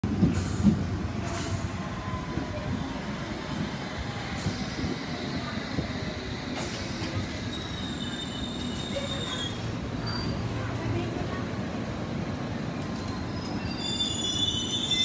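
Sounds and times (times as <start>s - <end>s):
high brake squeal: 6.6s - 10.5s, 13.2s - 15.0s.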